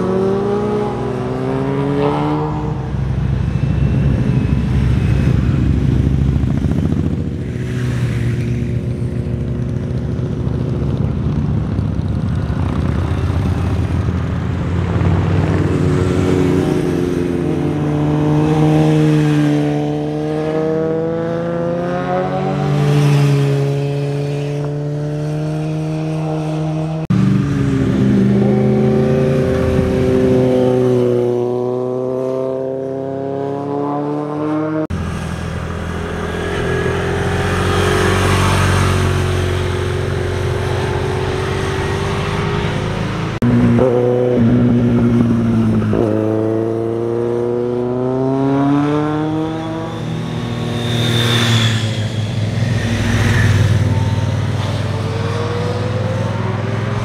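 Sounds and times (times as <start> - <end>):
motorcycle engines: 0.0 - 57.0.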